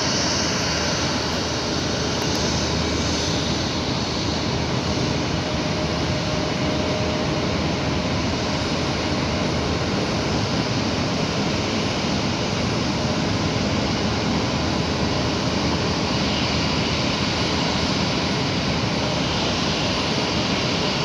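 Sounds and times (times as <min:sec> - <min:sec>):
jet engines idling: 0:00.0 - 0:21.0.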